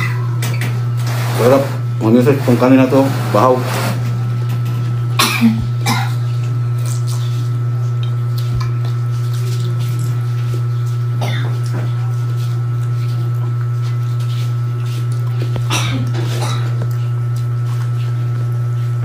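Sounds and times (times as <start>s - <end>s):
steady low hum: 0.0s - 19.0s
chewing mouth clicks and smacks: 6.4s - 10.1s.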